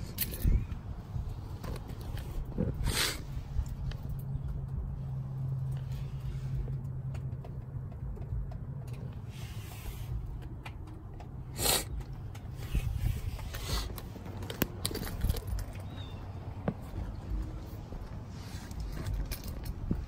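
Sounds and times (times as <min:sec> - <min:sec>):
wind rumble on microphone: 0:00.0 - 0:06.7, 0:12.4 - 0:20.0.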